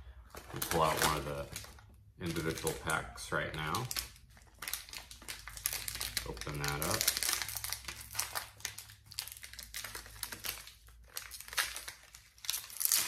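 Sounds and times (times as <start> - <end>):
plastic wrapper crinkling: 0.2 - 13.0.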